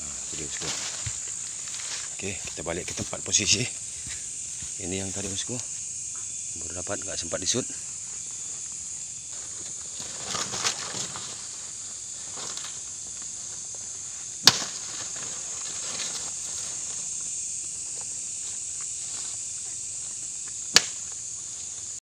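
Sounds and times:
crickets chirping: 0.0s - 22.0s
rustling: 7.8s - 20.3s.

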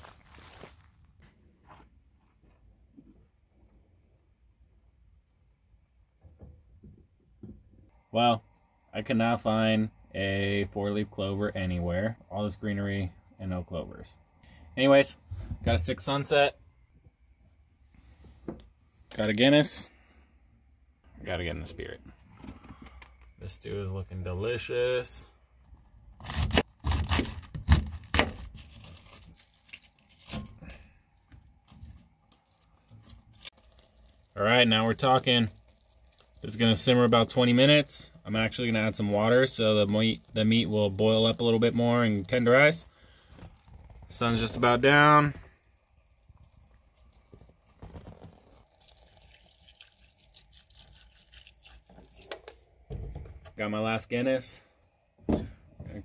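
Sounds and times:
knife cutting through cabbage: 26.2s - 30.6s
water trickling into a pan: 30.6s - 52.6s.

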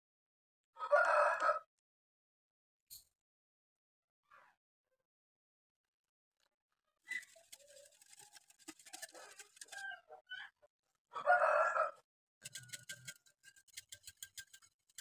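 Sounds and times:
whisk clicking against glass bowl: 7.2s - 9.8s, 12.4s - 15.0s.

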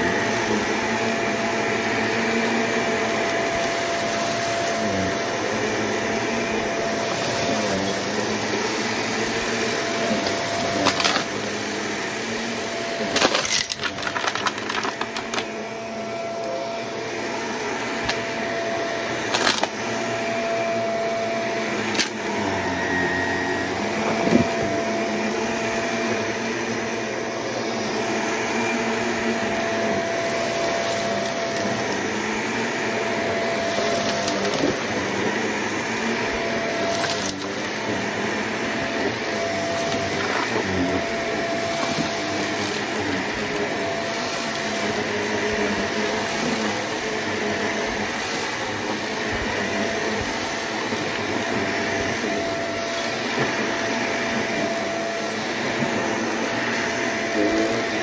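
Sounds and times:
vacuum cleaner motor whine: 0.0s - 58.0s
clicks and crackles of granules: 6.8s - 16.6s, 19.2s - 19.8s, 30.1s - 31.9s, 33.5s - 35.2s, 36.7s - 38.2s, 39.3s - 49.4s.

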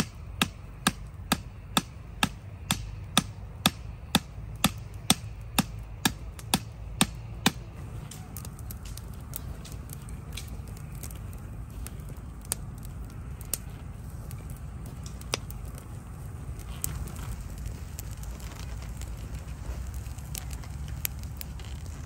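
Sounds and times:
hatchet chopping wood: 0.0s - 7.7s
campfire crackling: 0.0s - 22.0s.

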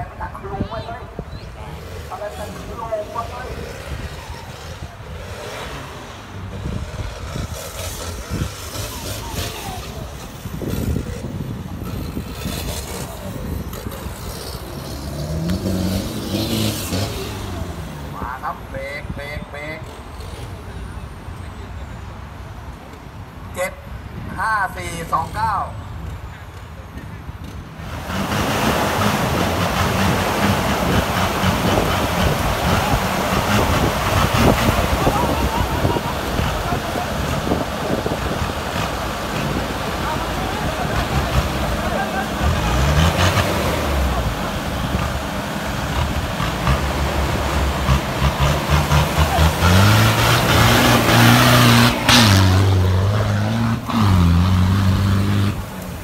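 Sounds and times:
truck engine running: 27.8s - 54.8s
wind buffeting microphone: 28.5s - 41.8s.

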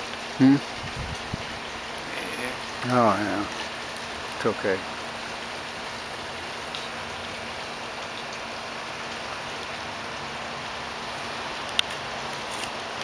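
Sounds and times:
background hiss: 1.4s - 8.9s.

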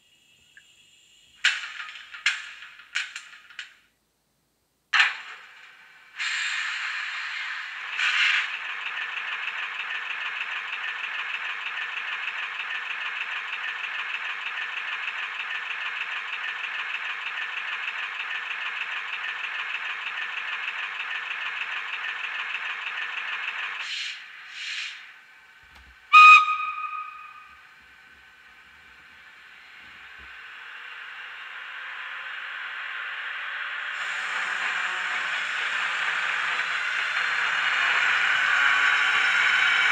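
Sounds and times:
model locomotive running sound: 5.0s - 39.9s
short hisses: 23.8s - 25.1s
short whistle blast: 26.1s - 27.6s.

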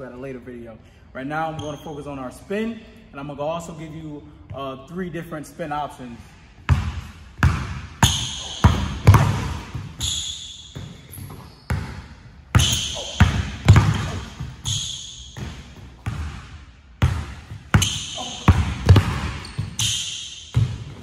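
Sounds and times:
sneakers squeaking on floor: 1.4s - 2.4s, 6.7s - 21.0s
basketball bouncing on hardwood: 6.7s - 10.1s, 10.7s - 16.4s, 17.0s - 19.9s, 20.5s - 21.0s.

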